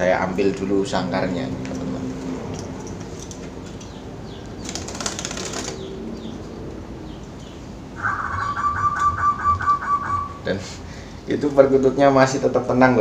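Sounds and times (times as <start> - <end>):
bird wings flapping: 4.6 - 6.0.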